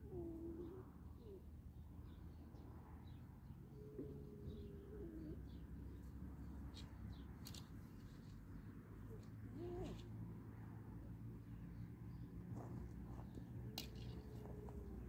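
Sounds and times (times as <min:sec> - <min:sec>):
dove cooing: 0:00.0 - 0:01.4, 0:03.7 - 0:06.0, 0:09.1 - 0:10.2, 0:13.1 - 0:15.0
small birds chirping: 0:00.1 - 0:10.2, 0:11.5 - 0:15.0.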